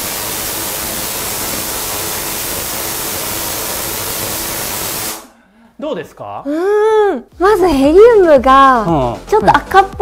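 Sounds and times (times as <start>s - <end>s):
tesla coil spark hiss: 0.0s - 5.3s.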